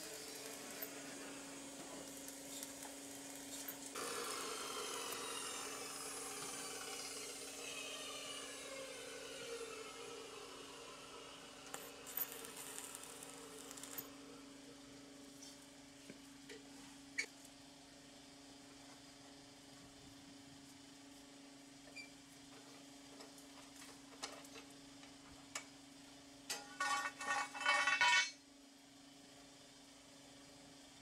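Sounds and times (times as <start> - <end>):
welding arc crackling: 0.0 - 7.4, 11.4 - 14.2
metallic clatter with ringing: 26.5 - 28.4.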